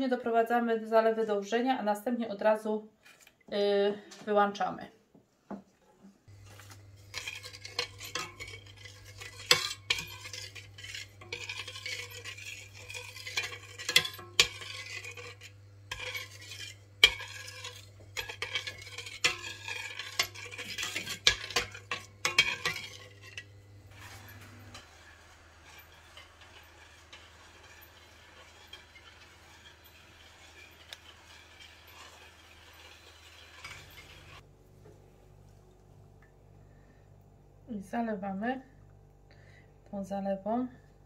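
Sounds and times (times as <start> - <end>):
metal spoon scraping a pot: 6.3 - 34.4.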